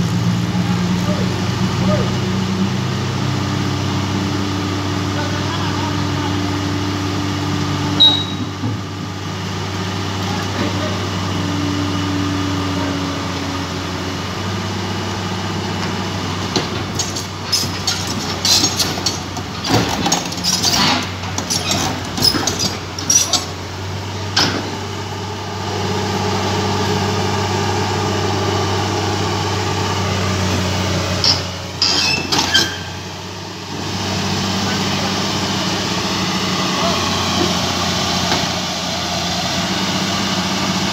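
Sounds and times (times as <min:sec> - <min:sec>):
excavator diesel engine running: 0:00.0 - 0:40.9
metallic clanks and squeals of tracks: 0:08.0 - 0:08.8, 0:16.8 - 0:23.6, 0:31.2 - 0:33.1.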